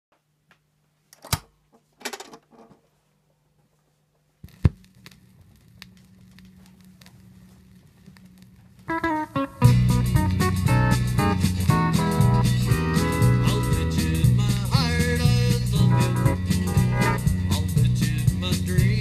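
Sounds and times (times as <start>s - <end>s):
record needle rumble and crackle: 2.5s - 19.0s.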